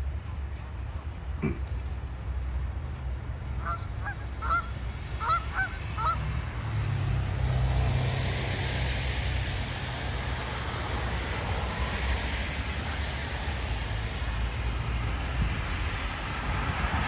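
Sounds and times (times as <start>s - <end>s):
car passing: 2.3s - 17.0s
geese honking: 3.6s - 6.2s.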